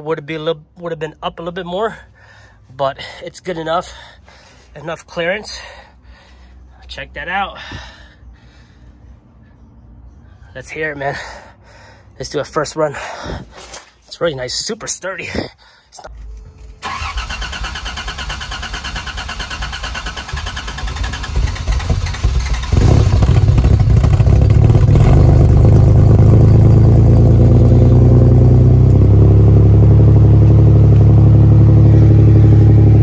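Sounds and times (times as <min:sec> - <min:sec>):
engine cranking on starter: 0:16.2 - 0:25.7.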